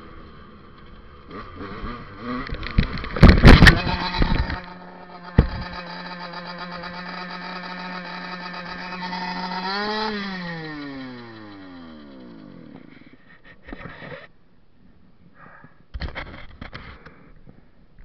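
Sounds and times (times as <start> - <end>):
dirt bike engine revving: 0.0 - 13.2.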